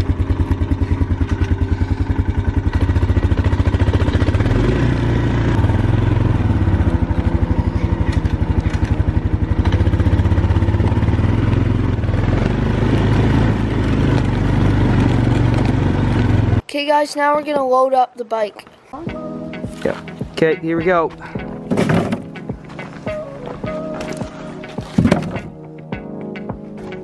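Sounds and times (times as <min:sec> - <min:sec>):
quad bike engine running: 0:00.0 - 0:16.6.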